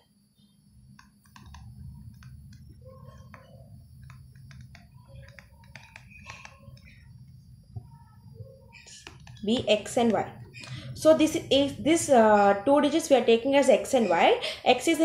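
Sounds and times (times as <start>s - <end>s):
low steady hum: 0.0s - 15.0s
stylus tapping on tablet screen: 0.9s - 10.8s.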